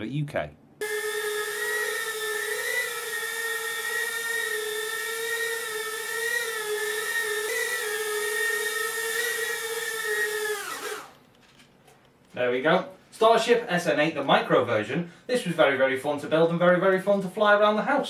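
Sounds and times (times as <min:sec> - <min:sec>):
whine of small electric motors: 0:00.8 - 0:11.2.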